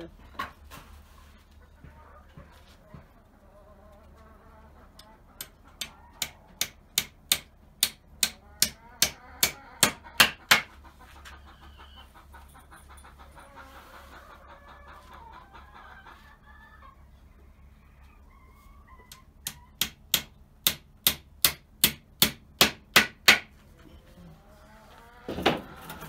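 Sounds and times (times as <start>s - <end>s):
hammer driving nails into wood: 6.6s - 10.7s, 19.8s - 23.5s.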